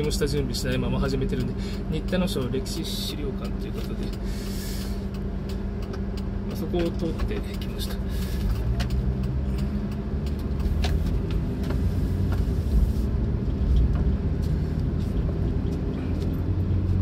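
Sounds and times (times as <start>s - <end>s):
car engine hum: 0.0s - 17.0s
road noise: 0.0s - 17.0s.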